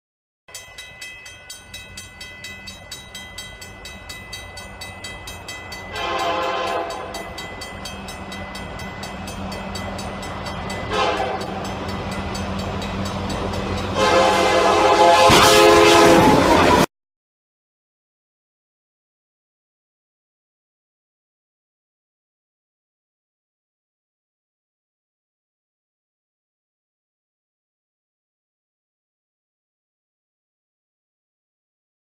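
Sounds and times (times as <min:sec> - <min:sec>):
railroad crossing bell ringing: 0:00.5 - 0:16.0
locomotive rumble: 0:00.9 - 0:16.9
locomotive horn blasts: 0:05.9 - 0:07.4, 0:10.8 - 0:11.7, 0:13.8 - 0:16.9.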